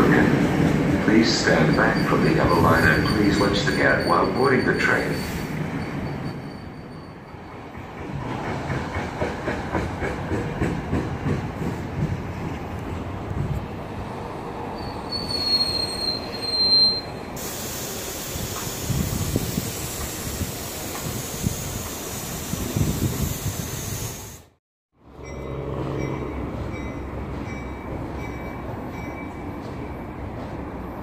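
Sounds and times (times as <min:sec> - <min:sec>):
train rumbling: 0:00.0 - 0:31.0
high wheel squeal: 0:01.4 - 0:07.6, 0:14.8 - 0:17.6.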